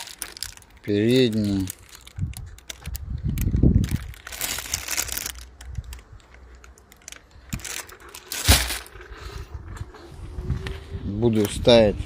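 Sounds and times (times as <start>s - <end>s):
plastic bags crinkling: 0.0s - 9.1s.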